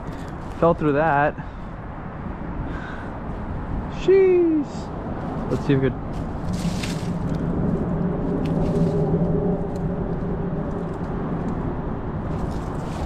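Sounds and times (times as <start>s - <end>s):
outdoor background noise: 0.0s - 13.0s
vehicle engine humming: 0.0s - 13.0s.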